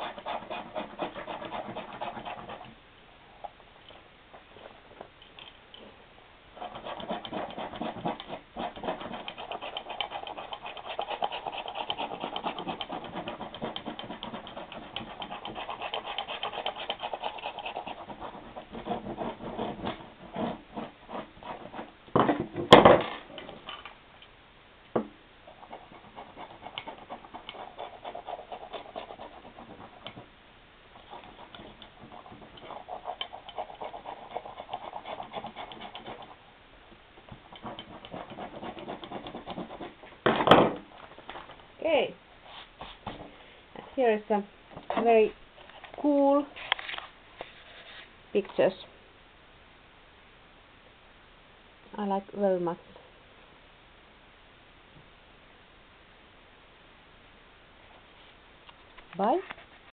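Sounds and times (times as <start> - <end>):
tool scratching paint off paper: 0.0 - 2.8, 6.6 - 22.0, 25.5 - 30.3, 31.0 - 36.4, 37.3 - 40.2.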